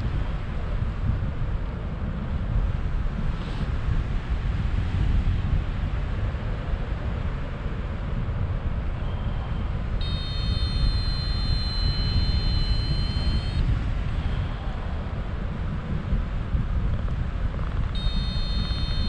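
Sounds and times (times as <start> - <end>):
wind buffeting microphone: 0.0 - 19.0
steady high tone: 10.0 - 13.6, 18.0 - 19.0.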